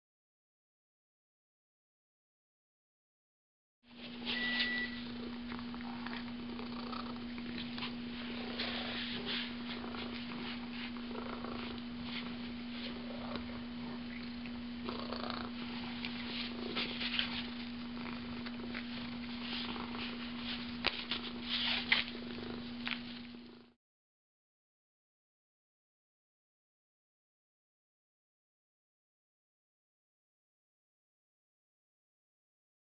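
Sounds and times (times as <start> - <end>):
steady low hum: 3.9 - 23.8
cat purring: 4.4 - 23.8.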